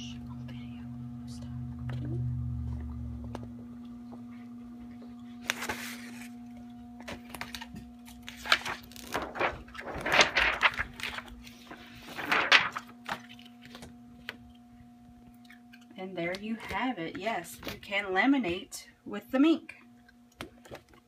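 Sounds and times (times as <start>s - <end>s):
rustling handling noise: 4.3s - 14.6s.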